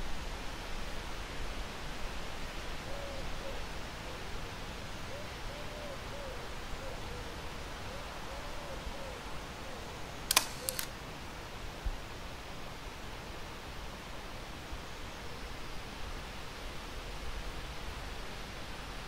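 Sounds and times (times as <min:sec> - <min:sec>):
steady outdoor hiss: 0:00.0 - 0:19.0
camera shutter clicks: 0:10.3 - 0:11.0.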